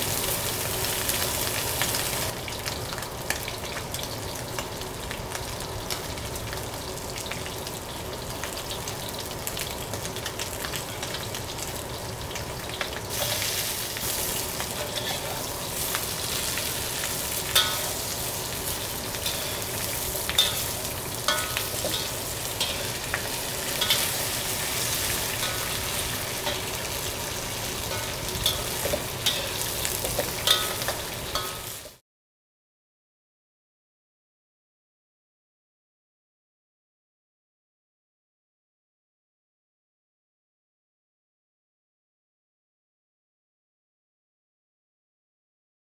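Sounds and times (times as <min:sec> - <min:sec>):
pork sizzling in hot oil: 0:00.0 - 0:32.0
spatula clinking against wok: 0:17.5 - 0:18.1, 0:20.3 - 0:23.1, 0:23.8 - 0:24.2, 0:27.8 - 0:31.9.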